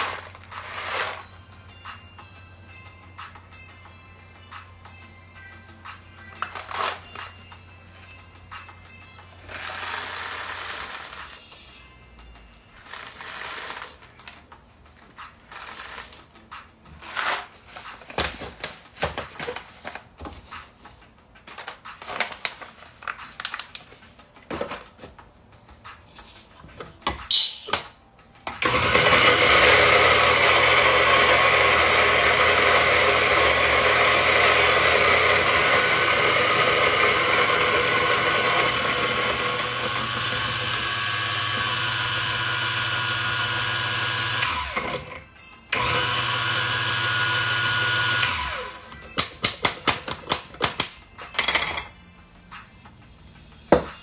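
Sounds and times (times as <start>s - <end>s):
electric coffee grinder running: 28.6s - 49.0s.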